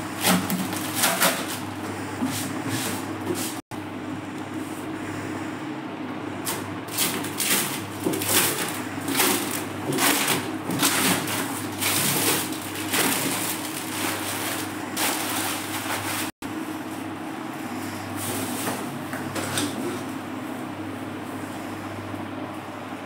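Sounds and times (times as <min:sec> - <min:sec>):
steady low hum: 0:00.0 - 0:23.0
plastic sheet crinkling: 0:07.1 - 0:16.9.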